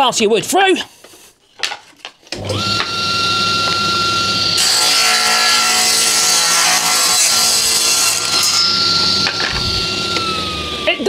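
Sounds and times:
table saw motor whining: 2.4 - 11.0
saw blade ripping wood: 4.6 - 10.3.

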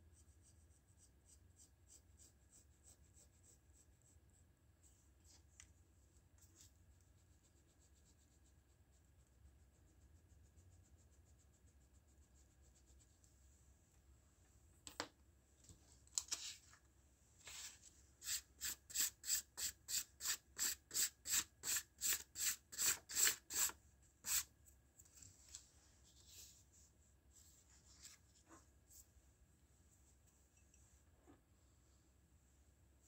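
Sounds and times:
hand rubbing drawing materials: 17.4 - 29.2.

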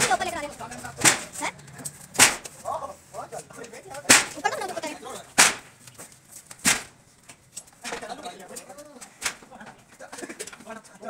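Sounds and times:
sharp whip-like cracks: 1.0 - 1.4, 2.2 - 2.5, 4.1 - 4.4, 5.4 - 5.7, 6.6 - 6.9.

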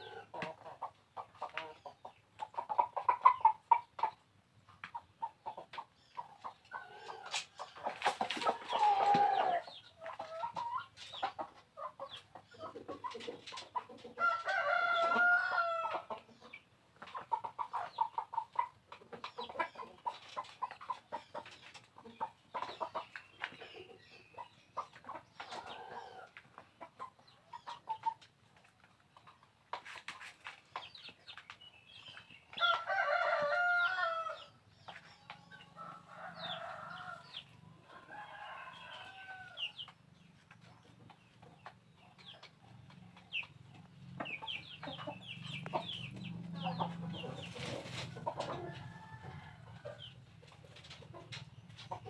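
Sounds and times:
roosters clucking: 0.0 - 52.0
rooster crowing: 14.2 - 15.9, 32.6 - 34.4, 38.1 - 39.6.

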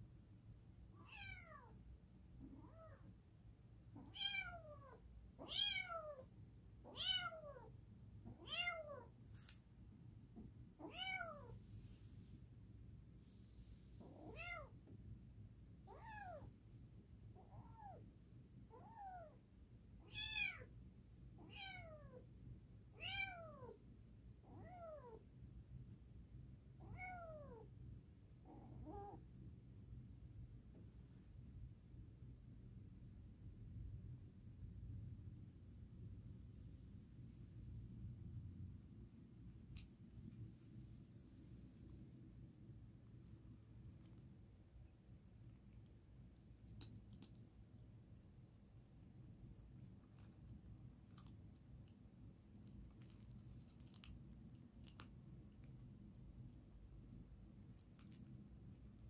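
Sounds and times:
kitten meowing: 4.0 - 7.7, 10.8 - 11.5.

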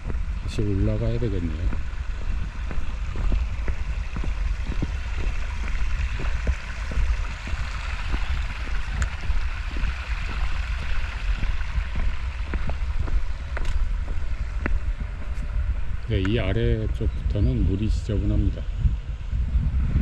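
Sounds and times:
stream rushing over rocks: 0.0 - 14.8
heavy low rumble: 0.0 - 20.0.

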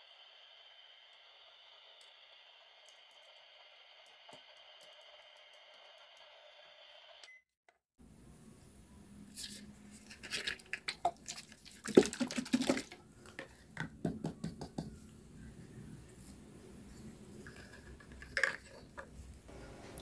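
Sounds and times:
faint steady hiss: 15.0 - 20.0.

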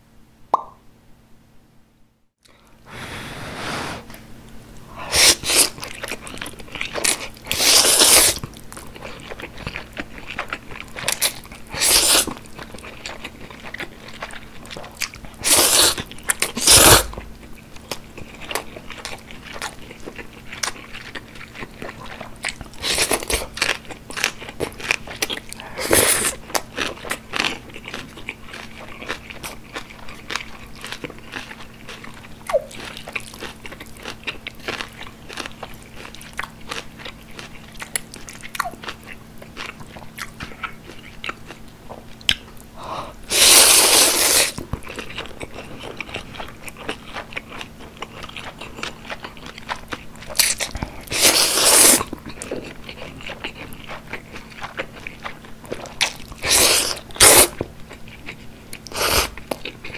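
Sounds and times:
loud noodle slurp: 2.9 - 4.1, 5.1 - 5.8, 7.5 - 8.4, 11.8 - 12.3, 15.4 - 16.0, 16.6 - 17.1, 43.3 - 44.6, 51.1 - 52.1, 56.4 - 57.6, 58.9 - 59.3
chewing noodles with mouth clicks: 5.1 - 59.9.

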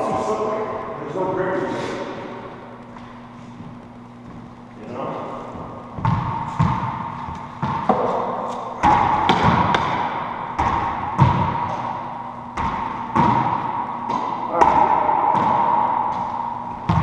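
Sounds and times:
racquetball smacks: 6.0 - 17.0.

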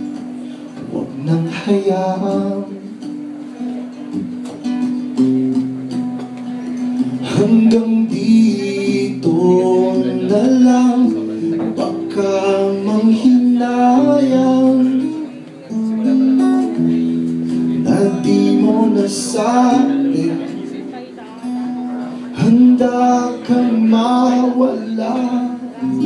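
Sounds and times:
acoustic guitar strumming: 0.0 - 26.0
man singing: 0.8 - 3.2, 7.0 - 16.4, 17.5 - 26.0.

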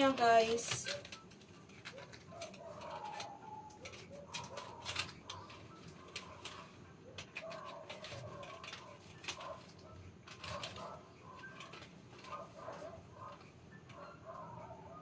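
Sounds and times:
curtain grommets clicking on rod: 0.0 - 14.4.

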